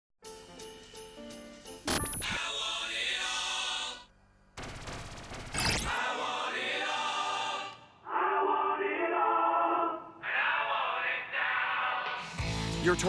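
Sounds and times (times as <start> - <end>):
choral singing: 2.2 - 4.1, 5.9 - 12.5
video game sound effects: 5.5 - 6.0.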